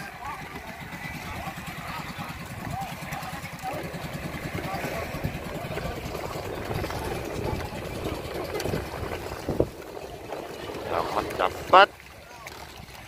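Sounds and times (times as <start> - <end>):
choppy sea water: 0.0 - 13.0
faint voices: 0.0 - 13.0
wind buffeting microphone: 0.0 - 13.0.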